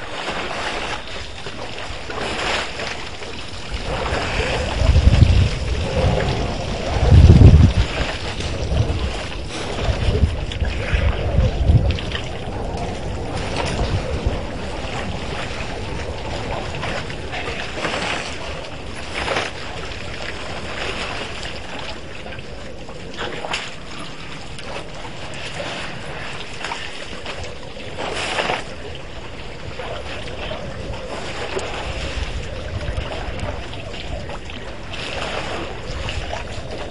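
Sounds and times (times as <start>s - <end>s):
water sloshing and splashing: 0.0s - 36.9s
wind on microphone: 0.0s - 36.9s.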